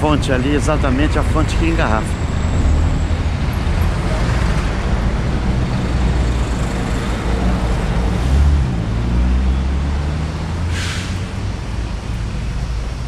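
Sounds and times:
short hiss: 10.7 - 11.3.

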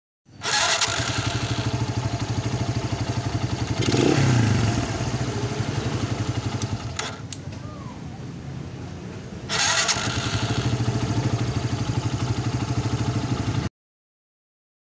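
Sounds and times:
motorcycle engine running: 0.4 - 7.3, 9.5 - 13.7.

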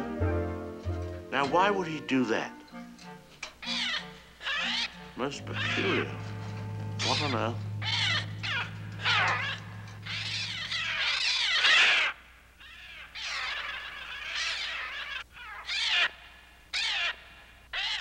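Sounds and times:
birds screeching: 3.5 - 18.0
low hum: 5.3 - 11.6.

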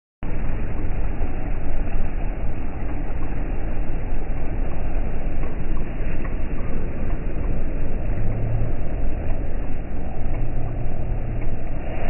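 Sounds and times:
ferry engine rumbling: 0.2 - 12.0
propeller wash churning water: 0.2 - 12.0.

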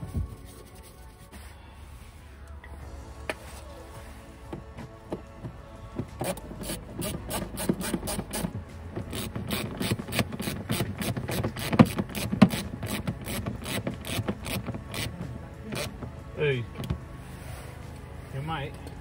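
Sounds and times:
hand ratchet clicking: 6.2 - 16.0.

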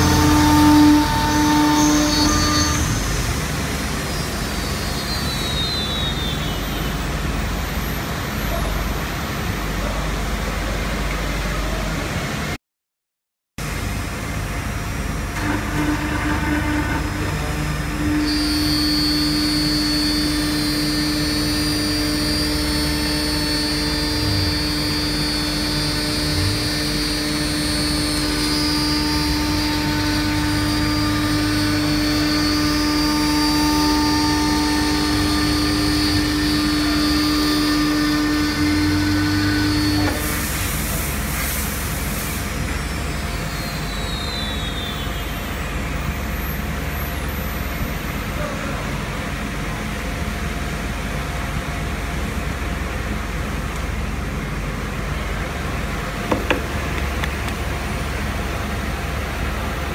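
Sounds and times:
router spindle whining: 0.0 - 7.3, 15.0 - 40.8, 55.1 - 59.9
bit cutting into wood: 56.3 - 57.6.

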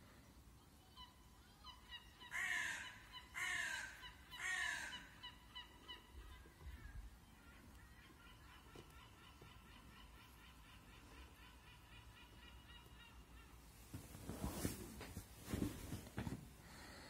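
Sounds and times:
drawn-out falling animal calls: 1.0 - 14.0.

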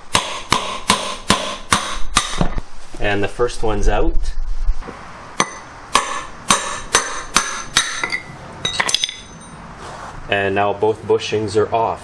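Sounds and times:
hammer striking steel rod: 0.1 - 2.5, 5.4 - 9.5
light metal clinks: 8.0 - 9.6.

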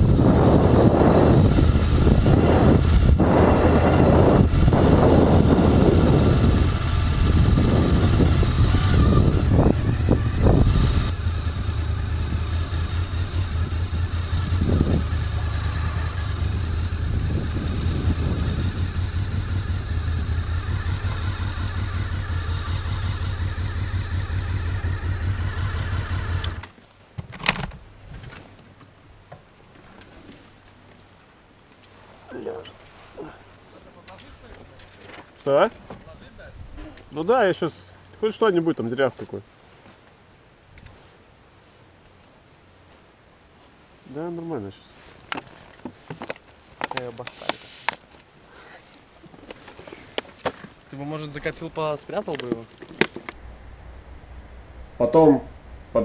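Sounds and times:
motorcycle engine running: 0.0 - 26.6.

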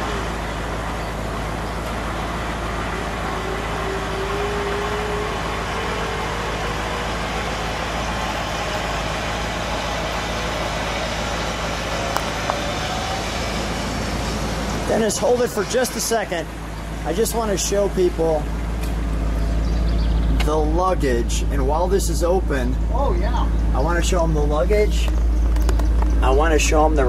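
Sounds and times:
convertible roof mechanism droning: 0.0 - 20.0
motor whine rising in pitch: 1.7 - 15.8.

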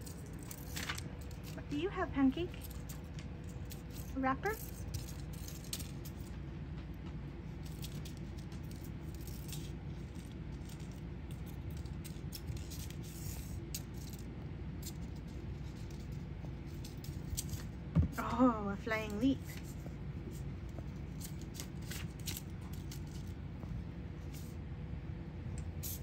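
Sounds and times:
steady low hum: 0.0 - 26.0
candy wrapper crinkling on floor: 0.1 - 1.6.

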